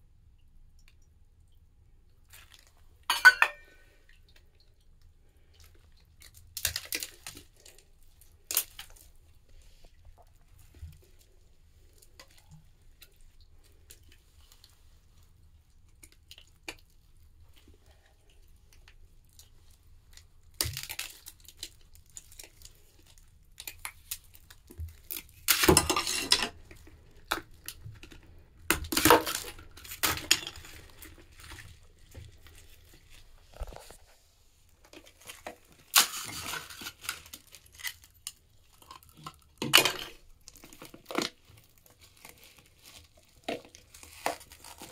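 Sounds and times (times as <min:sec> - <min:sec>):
plastic crinkling and rustling: 0:02.3 - 0:04.5, 0:05.4 - 0:44.9
faint handling noise: 0:29.3 - 0:38.8.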